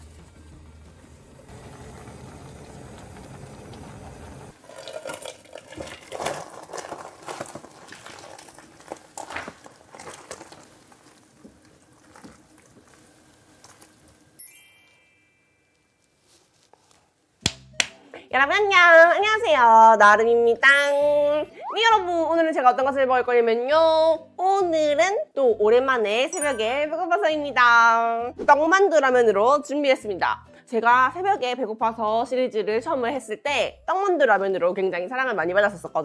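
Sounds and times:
ramen bubbling in a pot: 1.5s - 14.4s
liquid splashing and sloshing: 4.6s - 13.8s.

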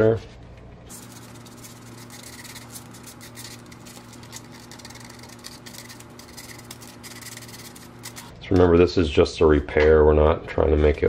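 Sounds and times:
sandpaper rubbing on plastic: 0.9s - 8.3s.

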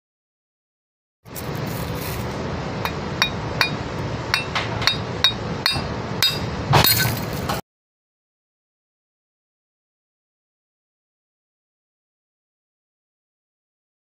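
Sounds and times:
steady background noise: 1.3s - 7.6s.

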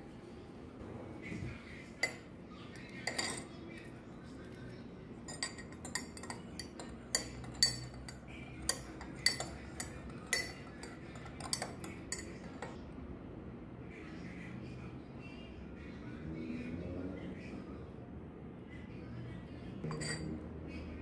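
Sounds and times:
teaspoon clinking in ceramic mug: 2.8s - 3.9s, 5.2s - 12.8s, 19.8s - 20.4s.

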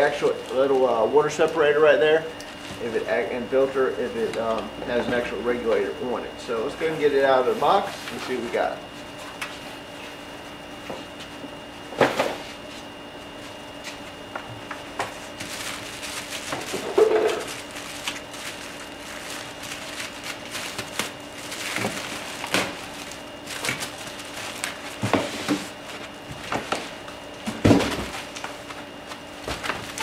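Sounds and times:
cardboard and foam rustling: 14.9s - 30.0s.

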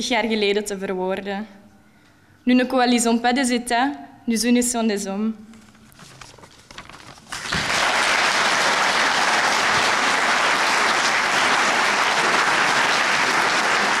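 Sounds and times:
audience applauding: 7.3s - 14.0s.

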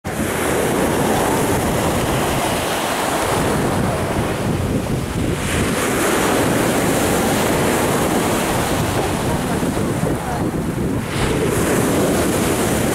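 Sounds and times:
surf washing up pebble beach: 0.1s - 12.9s
wind on microphone: 0.1s - 12.9s.

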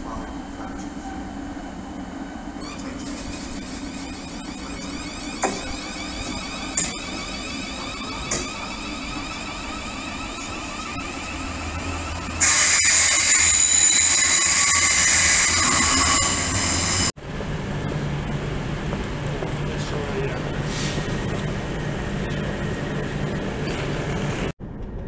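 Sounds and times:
electric train whine: 0.0s - 24.9s
high-pitched metallic squeal: 2.4s - 17.2s.

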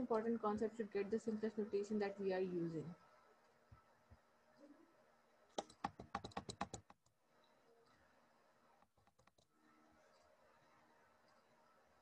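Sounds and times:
keyboard keys clicking: 5.6s - 7.0s.

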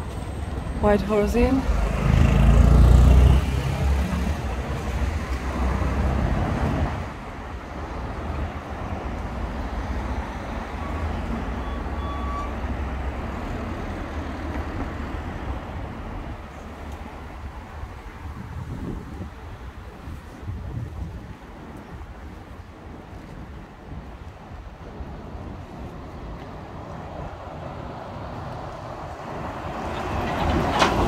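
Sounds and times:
vehicle passing with deep rumble: 0.0s - 7.2s
background traffic hum: 0.0s - 31.0s.

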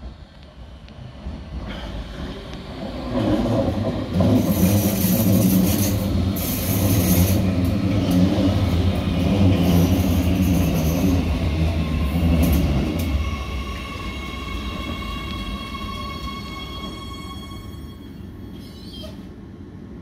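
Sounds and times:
metro train humming and hissing: 0.0s - 20.0s.

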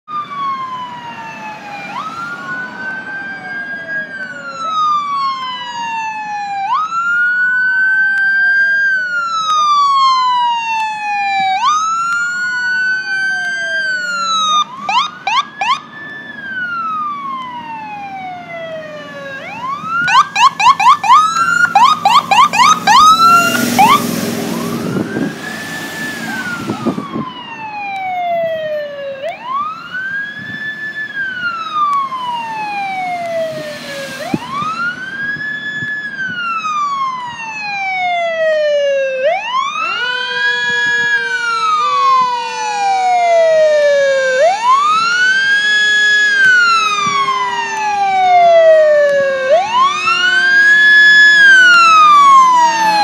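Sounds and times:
emergency sirens wailing: 0.0s - 53.0s
siren yelp: 0.1s - 53.0s
loud blaring horn: 39.8s - 42.8s, 45.7s - 47.8s, 49.4s - 53.0s.

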